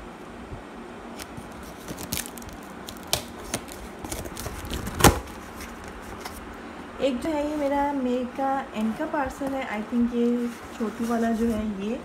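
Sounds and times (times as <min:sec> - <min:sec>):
tape and cardboard crinkling: 0:01.1 - 0:06.5.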